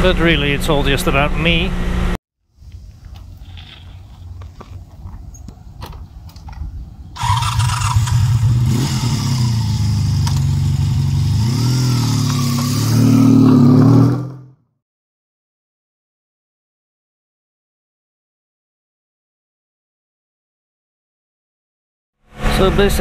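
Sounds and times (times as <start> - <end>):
motorcycle engine revving: 7.2 - 14.6.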